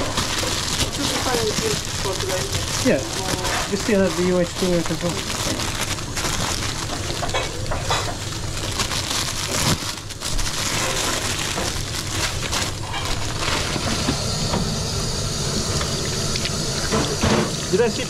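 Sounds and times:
pans and utensils clattering: 0:06.8 - 0:08.3, 0:12.7 - 0:14.7, 0:16.8 - 0:17.9.

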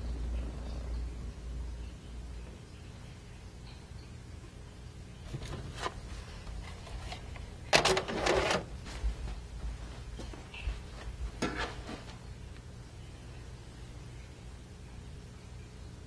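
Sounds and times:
knocking and scraping: 0:11.3 - 0:12.1.

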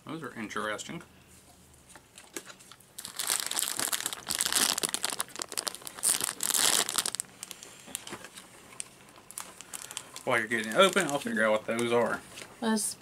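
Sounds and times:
plastic bag crinkling: 0:02.3 - 0:12.5.

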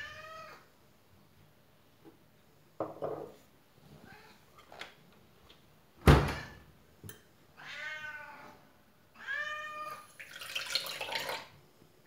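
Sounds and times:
cat meowing: 0:00.0 - 0:00.7, 0:07.6 - 0:10.1.

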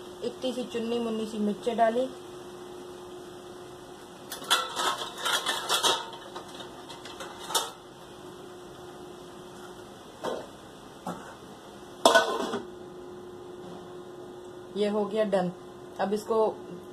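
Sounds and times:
steady low hum: 0:00.0 - 0:16.9.

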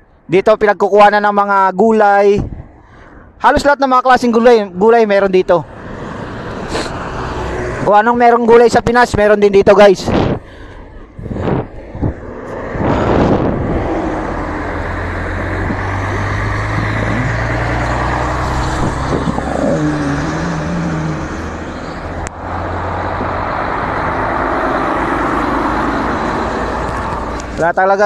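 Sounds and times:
cars passing on highway: 0:02.5 - 0:28.0
heavy truck passing: 0:05.6 - 0:08.0, 0:10.4 - 0:27.8.

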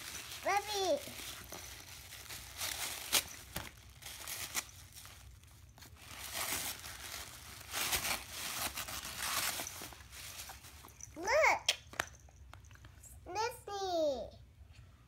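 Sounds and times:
tissue paper crinkling: 0:00.0 - 0:11.2.

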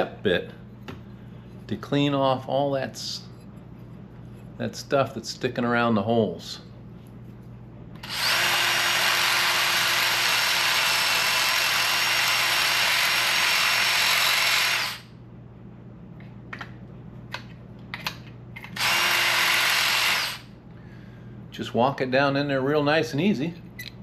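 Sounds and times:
power drill running on metal: 0:08.0 - 0:15.1, 0:18.8 - 0:20.5.

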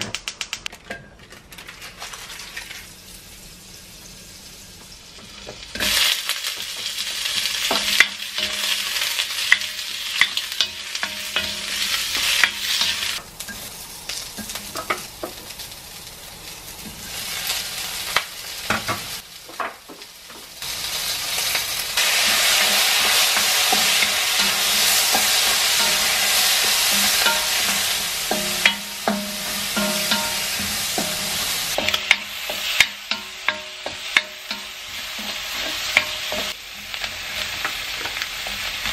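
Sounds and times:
vegetables sizzling in a wok: 0:01.0 - 0:38.9
utensil knocking against pan: 0:28.3 - 0:34.7.

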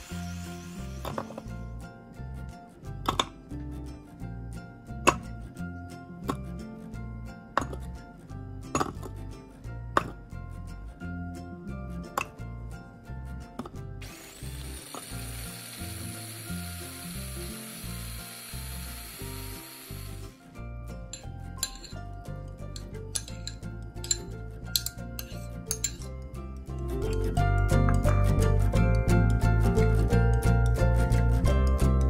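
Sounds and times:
food processor running: 0:00.0 - 0:01.6, 0:14.0 - 0:20.5
background music: 0:00.0 - 0:32.0
music with steady beat: 0:20.4 - 0:32.0
spoon clinking glass bowl: 0:21.1 - 0:22.0, 0:22.7 - 0:26.1
bass line: 0:26.1 - 0:32.0.

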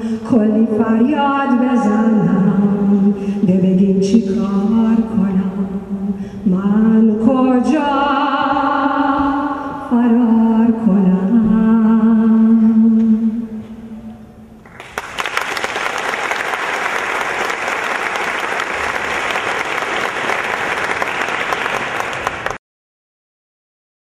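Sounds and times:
woman singing: 0:00.0 - 0:13.8
audience applause: 0:14.7 - 0:22.6.

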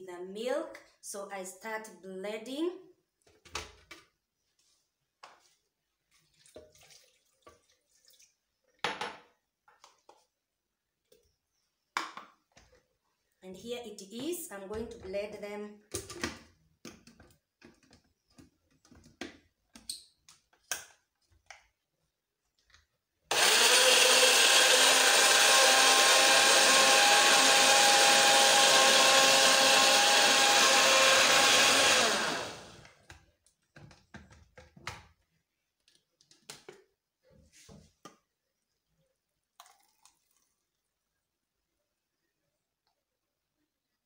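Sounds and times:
blender running: 0:23.3 - 0:33.0.

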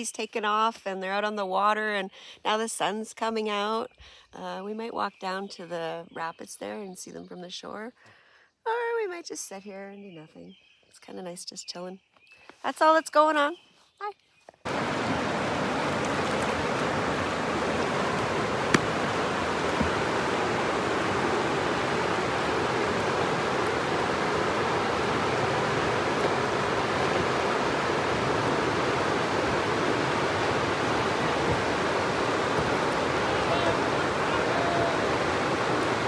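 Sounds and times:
river rapids rushing: 0:14.7 - 0:36.0.

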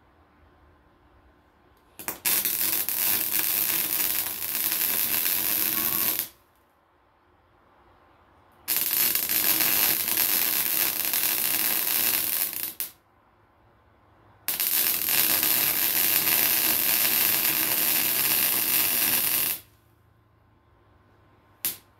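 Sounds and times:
arc welder welding: 0:02.0 - 0:06.4, 0:08.7 - 0:13.0, 0:14.5 - 0:19.8, 0:21.6 - 0:21.9.

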